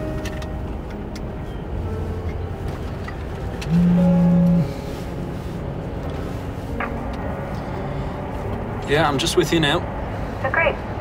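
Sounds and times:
moving car rumble: 0.0 - 11.0
car horn: 3.7 - 4.8.

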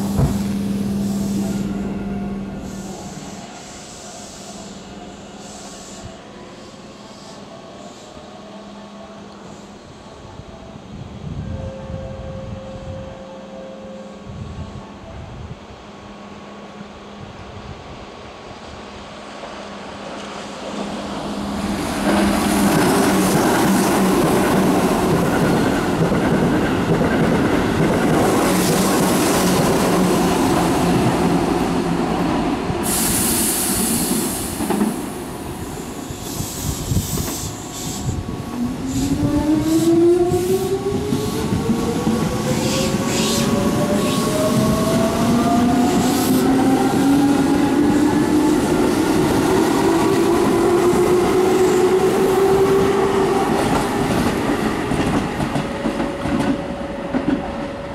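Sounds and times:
train wheels rumbling and clattering: 0.0 - 1.3, 19.4 - 57.9.

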